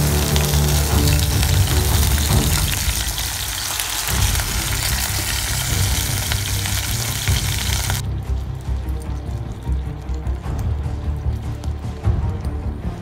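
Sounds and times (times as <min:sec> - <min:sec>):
chicken sizzling in hot oil: 0:00.0 - 0:08.0
background music: 0:00.0 - 0:13.0.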